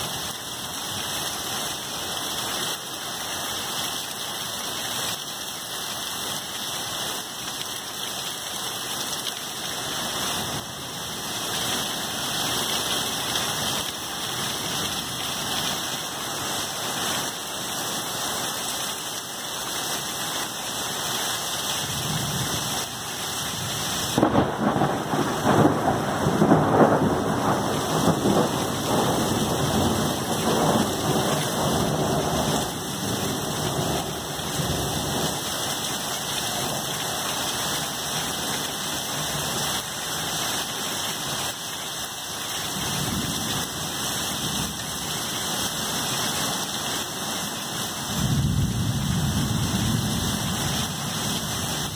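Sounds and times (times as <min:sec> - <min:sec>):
heavy rain pouring: 0:00.0 - 0:51.9
thunder rumbling: 0:24.1 - 0:35.4
loud thunderclap: 0:24.2 - 0:32.6.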